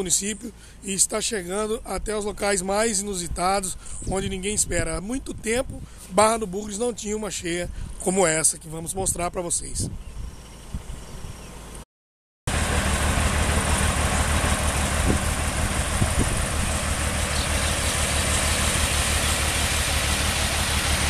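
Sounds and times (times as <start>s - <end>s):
truck engine idling: 12.5s - 21.0s.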